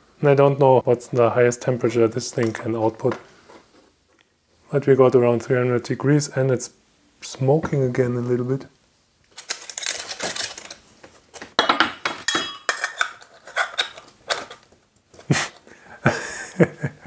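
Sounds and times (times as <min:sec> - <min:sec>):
metal nozzles clinking and scraping: 0:11.6 - 0:14.6.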